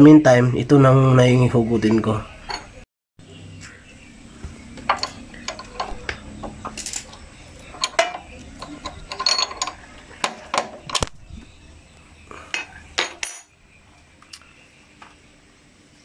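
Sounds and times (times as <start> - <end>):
wrench clinking against a nut: 6.7 - 11.1.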